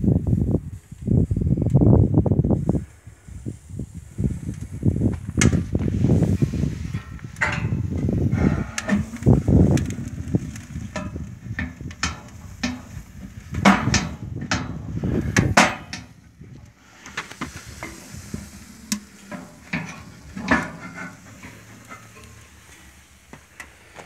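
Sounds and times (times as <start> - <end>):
steel door clanking: 17.8 - 22.7.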